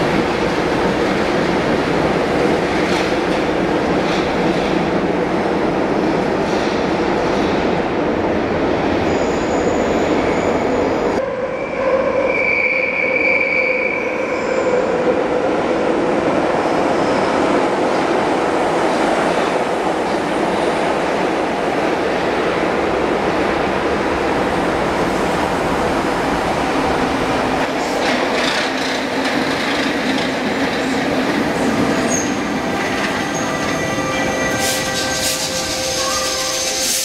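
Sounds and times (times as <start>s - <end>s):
metro train arriving: 0.0s - 37.0s
metro train pulling out: 0.0s - 37.0s
high squeal: 9.0s - 14.8s, 33.2s - 37.0s.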